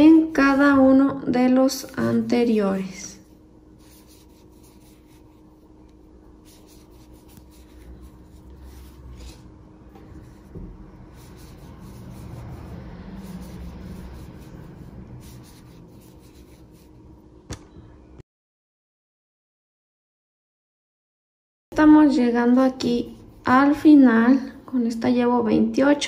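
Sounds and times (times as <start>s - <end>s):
faint steady hum: 0.0s - 18.2s
crochet hook scratching yarn: 3.8s - 5.7s, 6.4s - 17.0s.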